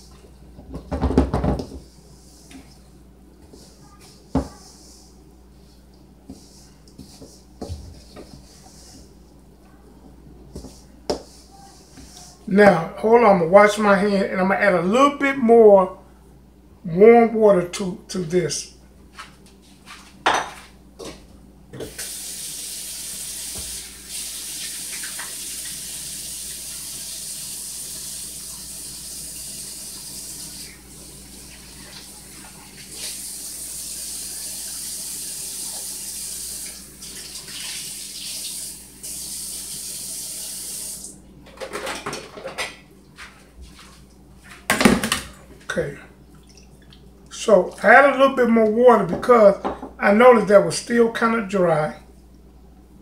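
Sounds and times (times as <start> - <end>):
faucet running into sink: 21.9 - 41.1.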